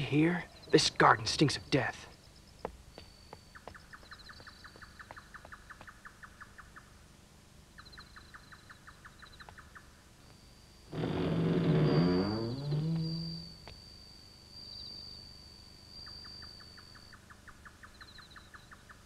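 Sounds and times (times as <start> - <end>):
thin high whine: 10.2 - 17.2
rhythmic chirping trill: 11.7 - 17.2.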